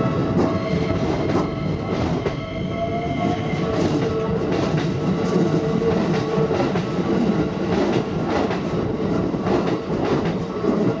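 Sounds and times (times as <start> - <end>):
train wheels clattering over rails: 3.6 - 11.0.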